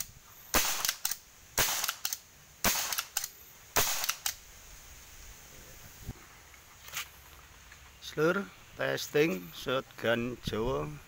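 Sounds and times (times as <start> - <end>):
air gun shots: 0.0 - 4.4
gun action clicks: 0.6 - 4.4.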